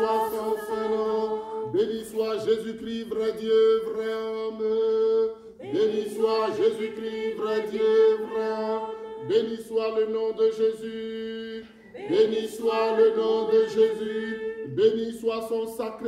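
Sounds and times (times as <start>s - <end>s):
man chanting: 12.4s - 16.0s.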